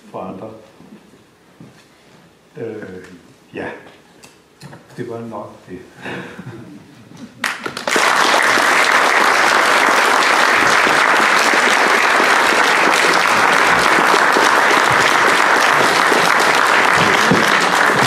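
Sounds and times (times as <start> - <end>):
audience applauding: 7.4 - 18.0.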